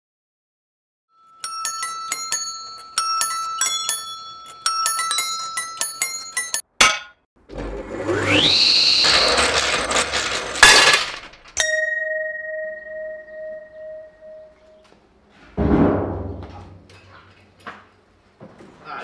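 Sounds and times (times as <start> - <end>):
table saw motor whine: 7.5 - 10.5
bell-like metallic strikes: 11.6 - 14.8.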